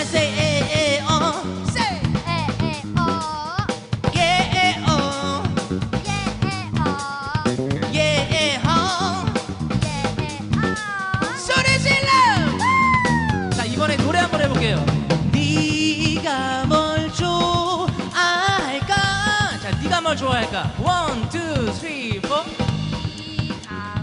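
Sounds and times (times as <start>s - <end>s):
live band playing: 0.0s - 24.0s
man singing with vibrato: 4.0s - 12.2s.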